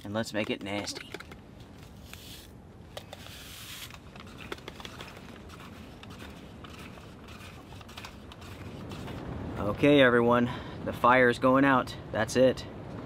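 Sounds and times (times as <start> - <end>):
small clicks and taps: 0.3 - 1.9
soft hissing rustle: 1.8 - 9.2.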